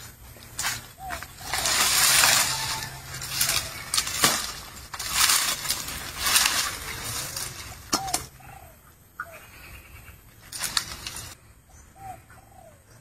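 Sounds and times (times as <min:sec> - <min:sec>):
dry leaves rustling and crackling: 0:00.0 - 0:08.4, 0:10.4 - 0:11.4.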